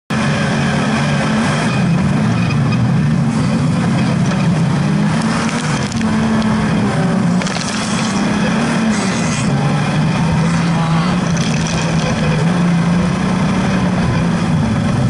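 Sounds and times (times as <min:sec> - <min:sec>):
racing buggy engine revving: 0:00.1 - 0:15.0
mud and grit clattering: 0:04.0 - 0:06.6, 0:07.2 - 0:12.6.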